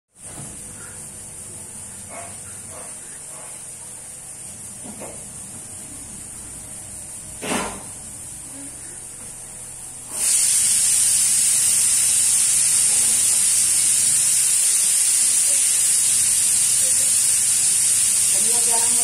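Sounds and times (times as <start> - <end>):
steady loud hiss: 9.9 - 19.0.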